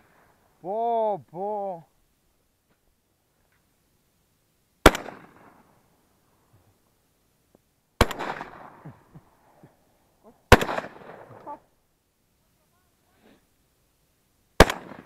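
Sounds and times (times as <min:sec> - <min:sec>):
shotgun shots echoing: 0:04.8 - 0:05.6, 0:08.0 - 0:09.0, 0:10.5 - 0:11.5, 0:14.6 - 0:15.0.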